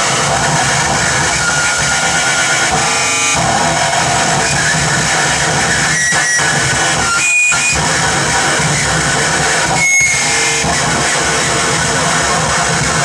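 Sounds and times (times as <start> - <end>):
whistling feedback tones: 0.0 - 8.0, 9.7 - 10.6
distorted electronic noise: 0.0 - 13.0.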